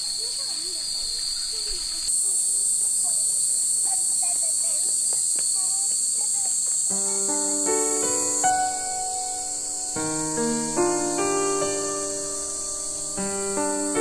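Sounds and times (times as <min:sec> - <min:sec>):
cicadas chorus: 0:00.0 - 0:14.0
faint distant voices: 0:00.0 - 0:14.0
soft piano music: 0:06.9 - 0:14.0.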